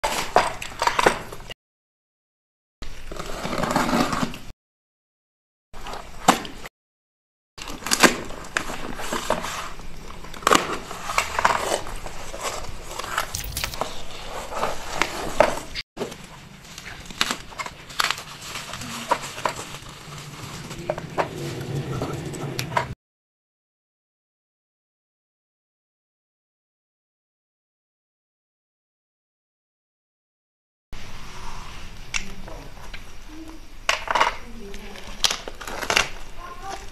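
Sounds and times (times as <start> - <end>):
knife cutting packing tape: 13.3 - 13.8.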